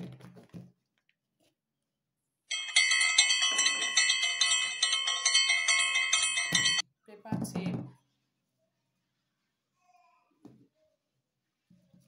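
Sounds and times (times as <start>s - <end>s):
bell-like chiming jingle: 2.5s - 6.8s.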